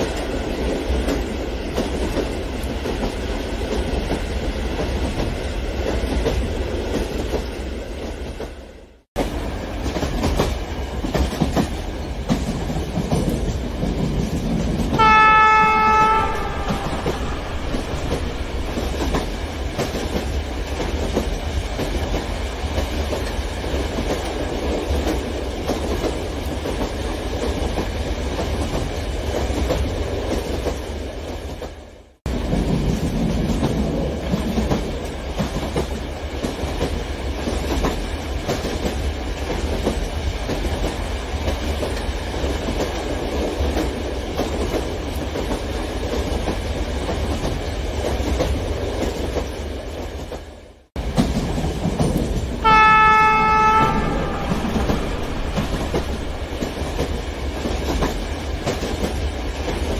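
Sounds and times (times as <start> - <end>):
train horn: 14.9 - 19.0, 52.6 - 57.0
model train rolling clatter: 51.0 - 52.6.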